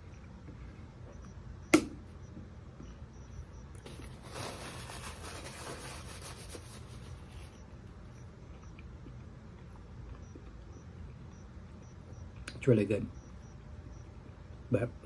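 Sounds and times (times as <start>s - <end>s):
paper napkin rustling and crumpling: 3.9s - 7.5s.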